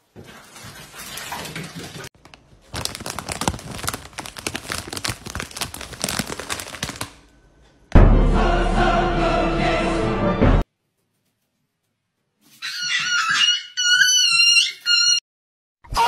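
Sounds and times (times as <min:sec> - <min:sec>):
plastic snack bag crinkling: 0:02.2 - 0:07.3.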